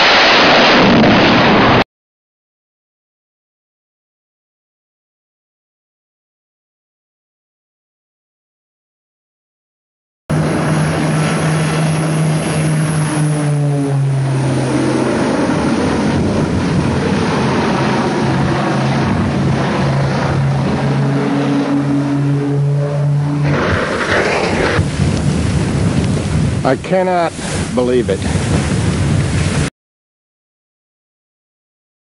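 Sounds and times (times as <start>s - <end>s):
rushing noise of plane crashing: 0.0s - 1.9s, 10.3s - 29.7s
propeller engines droning: 10.3s - 29.6s.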